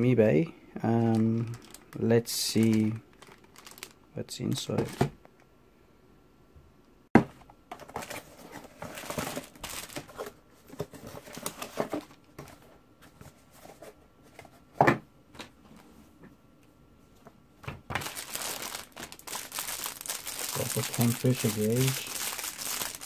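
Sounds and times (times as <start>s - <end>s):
plastic wrap crinkling: 0.9s - 5.0s, 8.0s - 10.3s, 17.9s - 23.0s
cardboard rustling and scraping: 7.7s - 14.8s.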